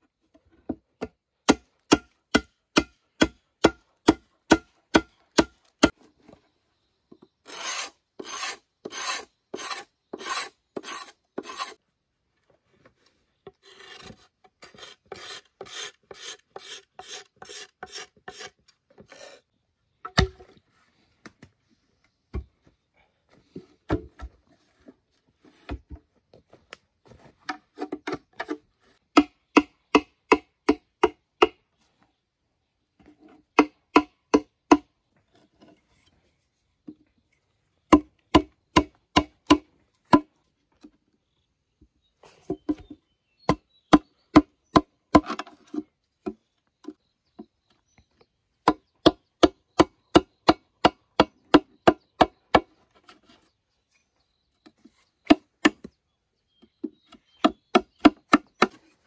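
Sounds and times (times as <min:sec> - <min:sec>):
hand tool rasping on bamboo: 0:07.4 - 0:11.8, 0:13.5 - 0:19.5.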